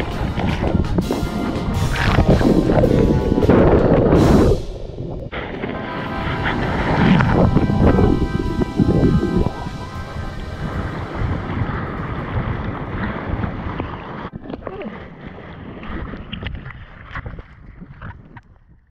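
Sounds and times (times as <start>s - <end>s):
whitewater rushing: 0.0s - 14.2s
wind buffeting microphone: 0.0s - 18.9s.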